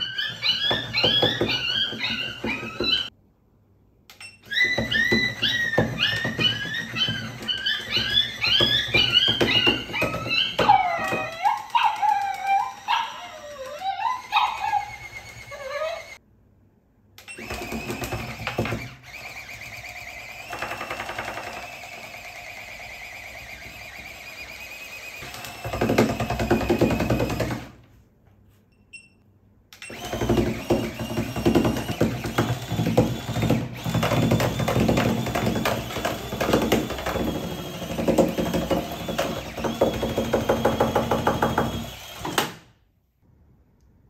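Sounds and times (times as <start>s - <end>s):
toy dog yelps and barks: 0.0s - 3.1s, 4.4s - 16.2s
toy motor whirring with high whine: 0.0s - 3.1s, 4.4s - 16.2s, 17.3s - 27.5s, 29.8s - 42.5s.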